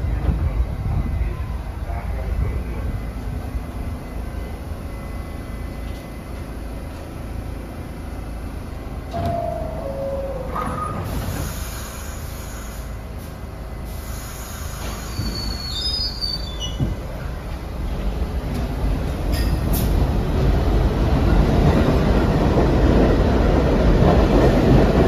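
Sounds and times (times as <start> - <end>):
subway train low rumble: 0.0 - 25.0
hiss of air: 11.0 - 16.2
high wheel squeal: 14.8 - 16.9.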